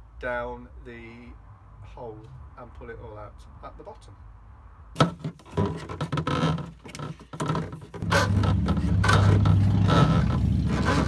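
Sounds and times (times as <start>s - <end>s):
plastic pipe scraping: 5.0s - 11.0s
low rumble: 8.0s - 11.0s.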